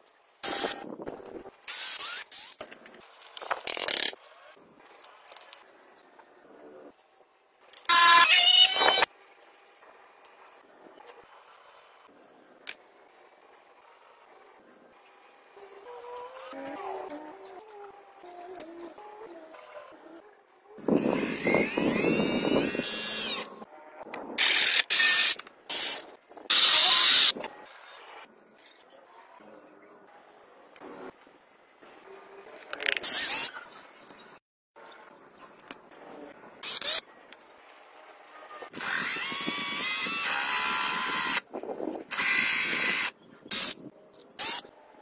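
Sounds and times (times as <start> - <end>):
electric gear pump whining: 20.8 - 23.6, 38.8 - 41.5
electric drill sanding: 38.8 - 41.4.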